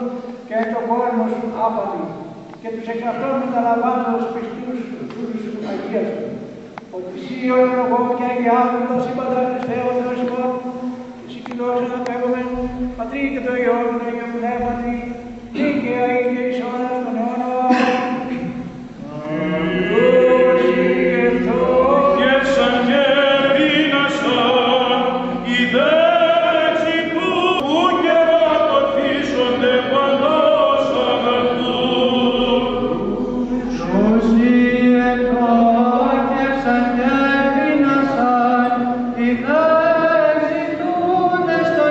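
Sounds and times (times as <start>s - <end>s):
voices singing ornamented chant: 17.7s - 41.9s
held drone note: 19.0s - 25.8s.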